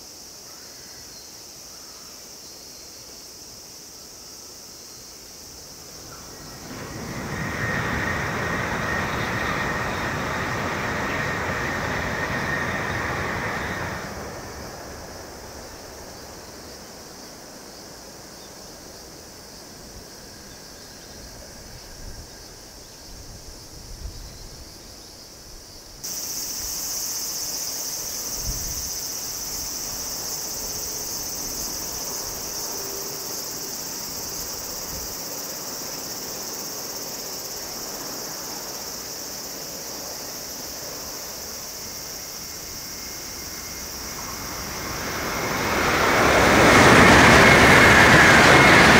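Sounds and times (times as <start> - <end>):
high-pitched insect chorus: 0.0 - 48.9
outdoor ambience: 0.0 - 48.9
high-speed train passing: 5.2 - 48.9.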